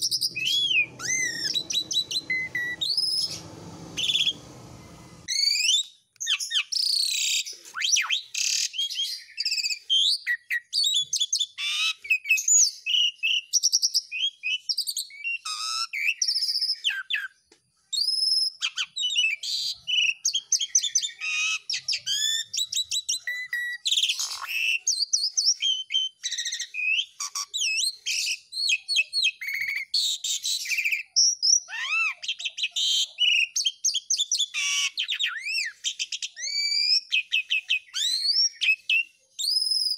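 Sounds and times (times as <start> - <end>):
starling singing: 0.0 - 5.3.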